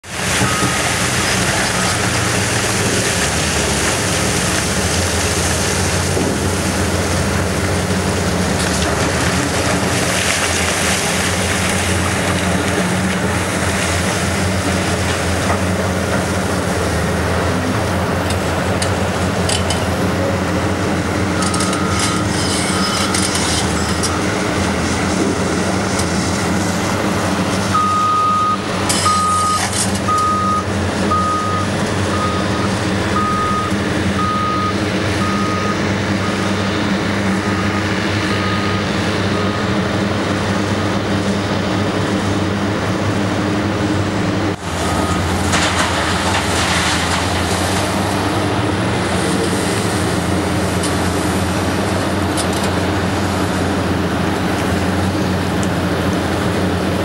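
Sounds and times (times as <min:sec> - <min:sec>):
excavator diesel engine running: 0:00.0 - 0:57.0
reversing alarm beeping: 0:00.4 - 0:01.0, 0:21.3 - 0:24.4, 0:27.7 - 0:36.5, 0:37.4 - 0:39.8, 0:44.8 - 0:45.5.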